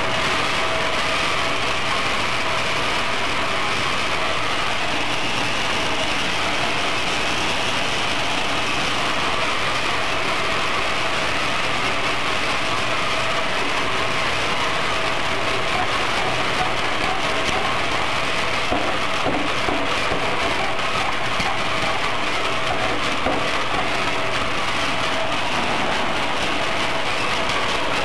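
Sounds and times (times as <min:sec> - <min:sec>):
peanuts rattling in a drum: 0:08.5 - 0:28.0
low motor hum: 0:14.5 - 0:28.0.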